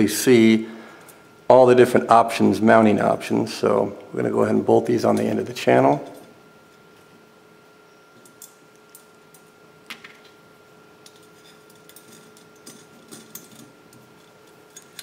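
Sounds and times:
small metal parts clicking: 0:08.2 - 0:09.4, 0:11.0 - 0:15.0.

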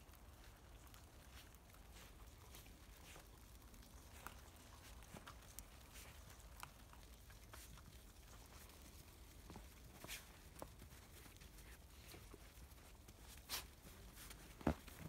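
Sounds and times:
paws crunching in snow: 0:00.0 - 0:15.0.

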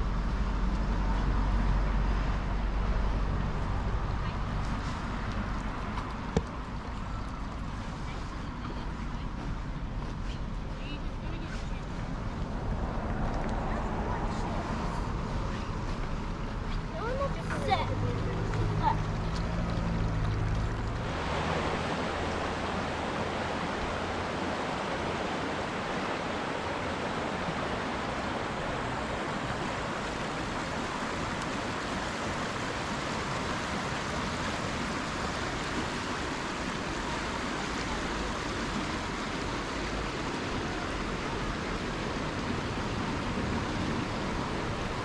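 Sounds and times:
flowing water rushing: 0:00.0 - 0:45.0.

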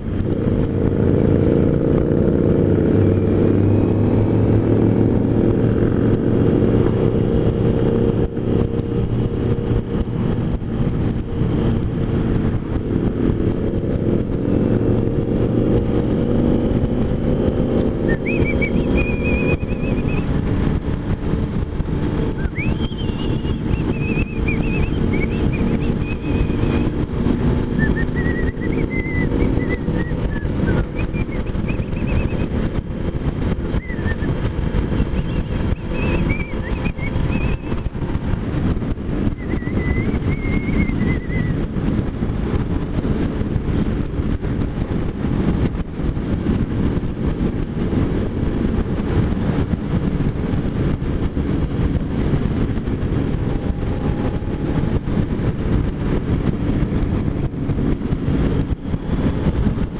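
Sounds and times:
motorcycle engine and road noise: 0:00.0 - 0:59.9
wind rush over microphone: 0:00.0 - 0:59.9
faint high whistling: 0:18.0 - 0:20.3, 0:22.3 - 0:26.9, 0:27.8 - 0:32.5, 0:33.7 - 0:34.3, 0:34.9 - 0:37.9, 0:39.2 - 0:41.6.

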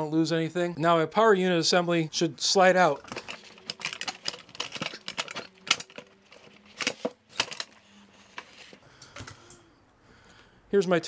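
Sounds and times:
metal clinks and knocks: 0:03.0 - 0:07.8.

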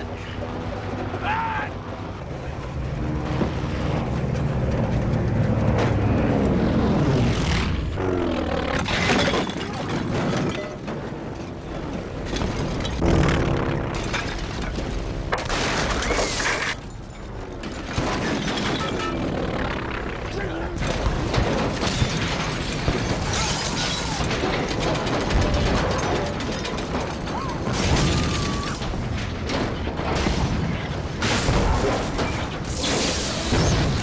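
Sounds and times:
propeller plane engine diving: 0:00.0 - 0:08.9, 0:13.0 - 0:15.3, 0:18.9 - 0:20.8
loud crashes and smashing impacts: 0:20.8 - 0:34.0.

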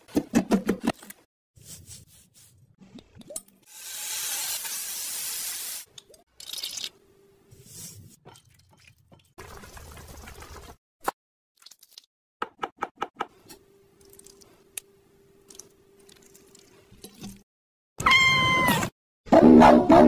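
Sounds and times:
cat meowing: 0:18.0 - 0:18.9.

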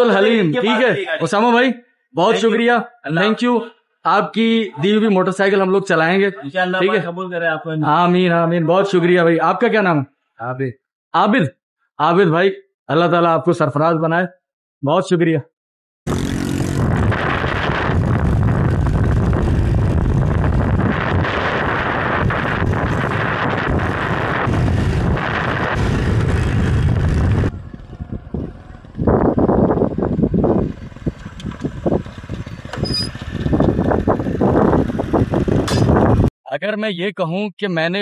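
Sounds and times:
motorcycle engine running: 0:16.1 - 0:36.3
wind gusts on microphone: 0:16.1 - 0:36.3
wind rushing on microphone: 0:16.1 - 0:36.3.

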